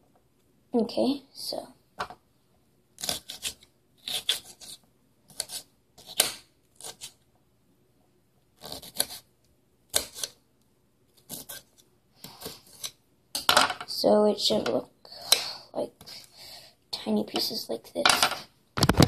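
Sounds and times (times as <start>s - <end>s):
knife blade scraping: 10.0s - 10.4s.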